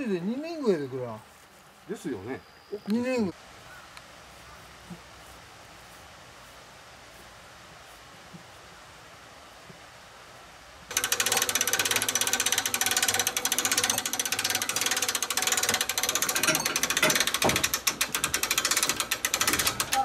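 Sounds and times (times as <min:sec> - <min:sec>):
winch ratchet clicking: 0:10.9 - 0:20.0.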